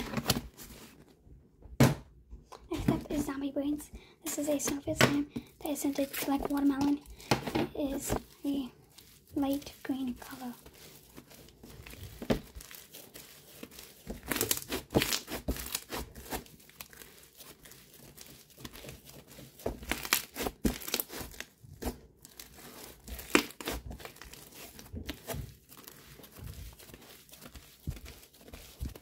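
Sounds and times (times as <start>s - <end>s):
slime crackling and tearing: 5.9s - 29.0s.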